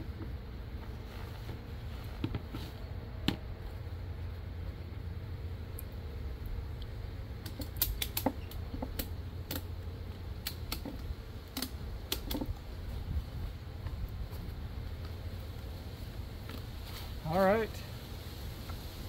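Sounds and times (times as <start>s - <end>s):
steady low hum: 0.0s - 19.0s
ratchet strap clicking: 7.4s - 9.7s.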